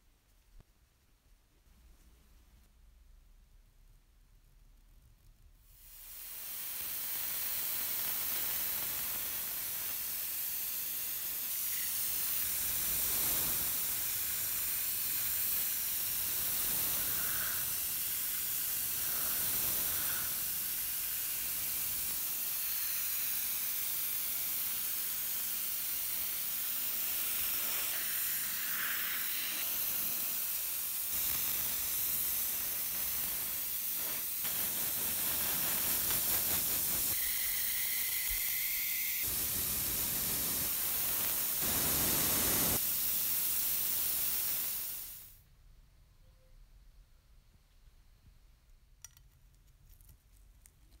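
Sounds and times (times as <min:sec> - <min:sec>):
airbrush spray hissing: 0:05.8 - 0:45.4.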